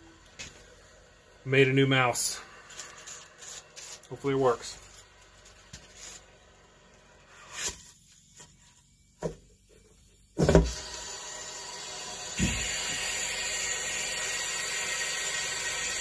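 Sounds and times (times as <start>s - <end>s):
air hissing through pipe: 8.9s - 16.0s.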